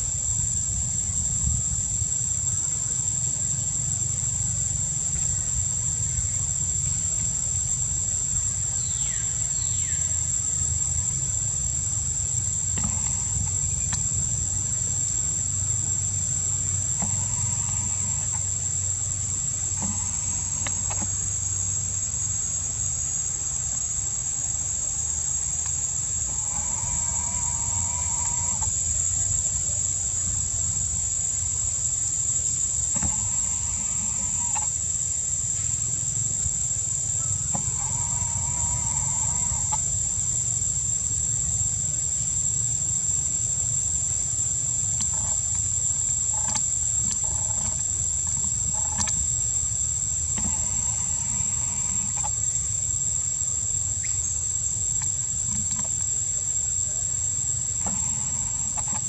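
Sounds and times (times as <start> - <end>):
insects shrilling: 0.0 - 59.0
drawn-out calls: 26.3 - 28.7, 33.0 - 34.7, 37.2 - 39.8, 50.4 - 52.3, 57.8 - 59.0.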